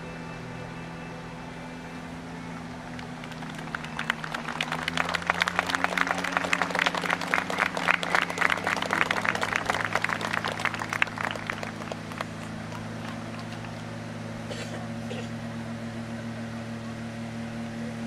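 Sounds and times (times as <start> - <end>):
audience applause: 3.0 - 13.9.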